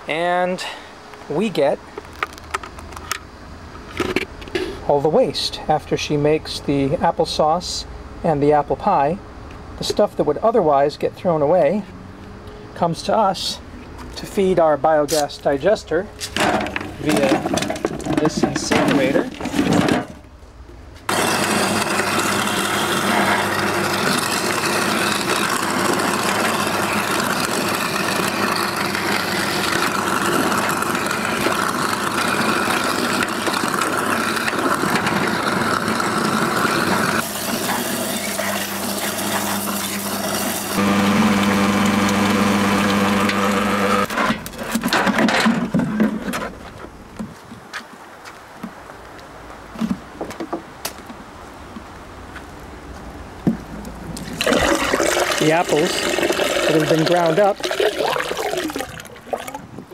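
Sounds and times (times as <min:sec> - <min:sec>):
clunks: 0:16.2 - 0:20.3
garbage disposal grinding: 0:16.3 - 0:20.3, 0:21.1 - 0:46.4, 0:54.2 - 0:59.6.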